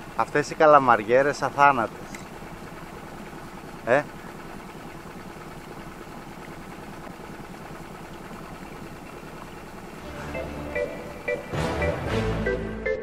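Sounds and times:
boat engine idling: 0.0 - 13.0
music: 10.0 - 13.0.

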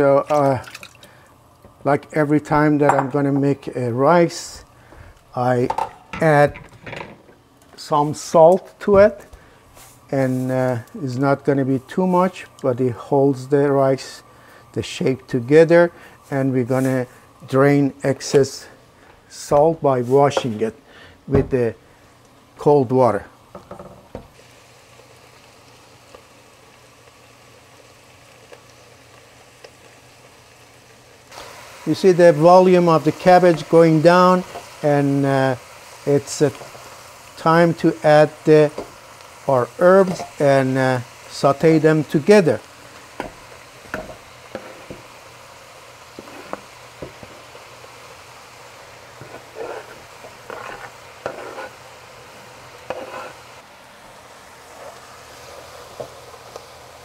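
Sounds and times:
low hum of gas range: 0.0 - 57.0
stovetop cooking hiss: 0.0 - 57.0
cabbage sizzling in oil: 7.8 - 20.7, 21.9 - 57.0
spatula scraping cutting board: 44.5 - 45.0, 46.2 - 46.6, 49.2 - 51.8, 52.9 - 53.4.

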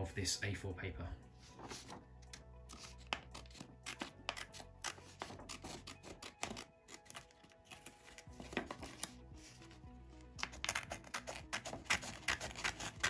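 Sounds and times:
quiet background music: 0.0 - 13.0
small scissors snipping paper: 2.7 - 7.8, 10.4 - 13.0.

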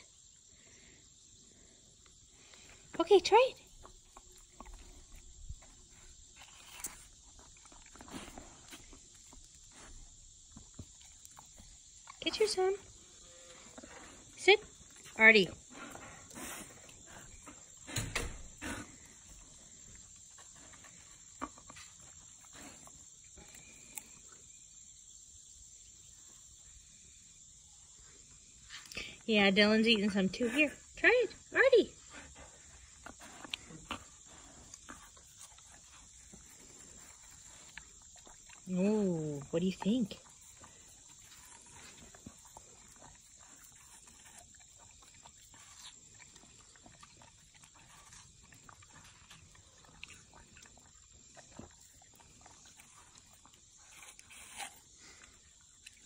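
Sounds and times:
dog chewing watermelon: 2.0 - 24.6, 32.3 - 56.0
dog licking and slurping: 33.0 - 56.0.

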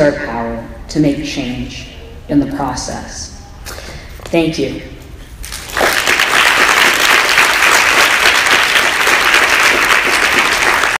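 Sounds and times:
audience applauding: 5.5 - 11.0.

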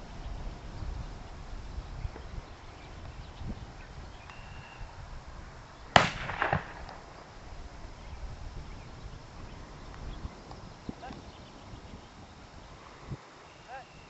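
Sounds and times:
weaker cracks: 5.9 - 7.4
gunshot: 6.0 - 7.2.

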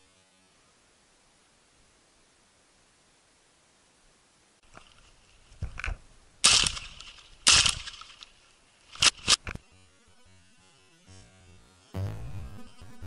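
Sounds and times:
short sharp cracks: 5.6 - 9.6.

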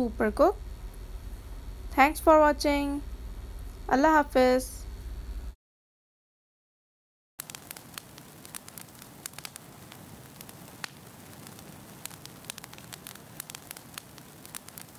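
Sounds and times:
crackling fire: 0.0 - 5.6, 7.4 - 14.9.

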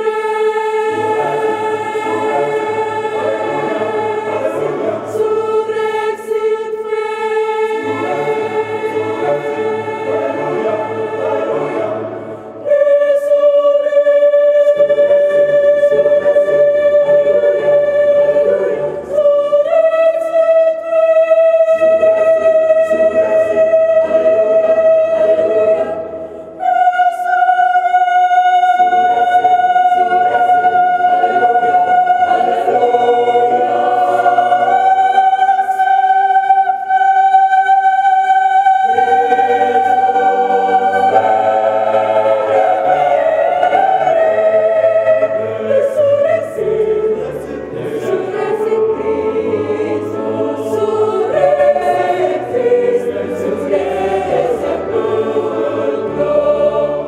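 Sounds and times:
mixed choir singing: 0.0 - 57.0.

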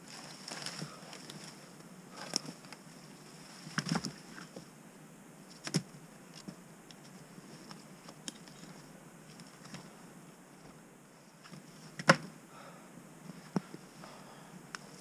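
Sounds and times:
twig crackles: 0.0 - 4.6
branches cracking and snapping: 0.1 - 1.6, 3.6 - 4.6.

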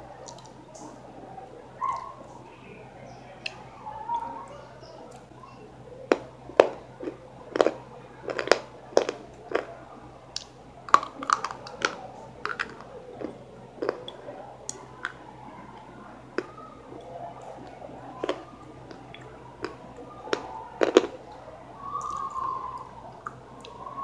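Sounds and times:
crunching and chewing: 0.2 - 1.0, 6.0 - 23.9.

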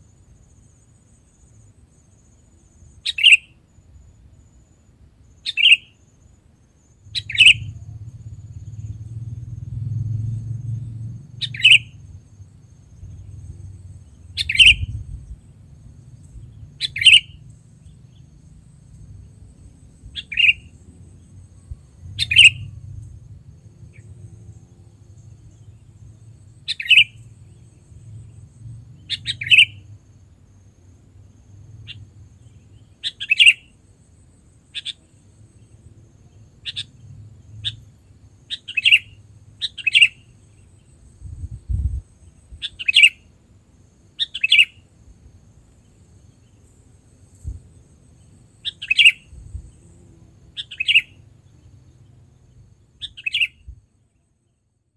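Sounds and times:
faint low rumble: 7.0 - 32.9, 40.3 - 42.7
bird giving sharp calls: 11.4 - 11.8, 22.2 - 22.7.

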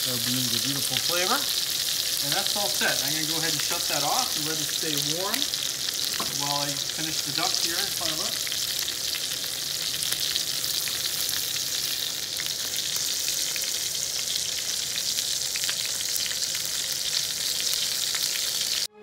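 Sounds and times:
fat sizzling in frying pans: 0.0 - 18.9.

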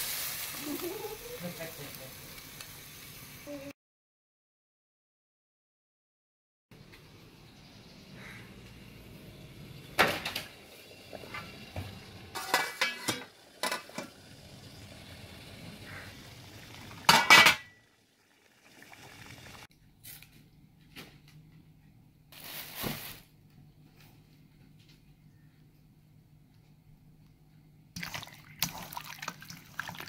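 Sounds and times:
metal cookware clinking: 12.3 - 14.2, 17.0 - 17.8.

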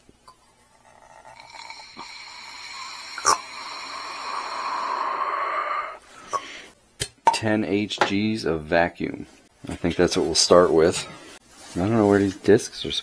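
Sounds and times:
air hissing through valve: 1.4 - 6.4.

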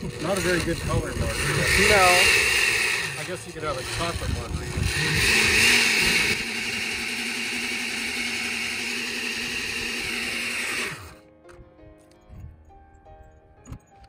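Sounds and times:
electric blender running: 0.0 - 11.2.

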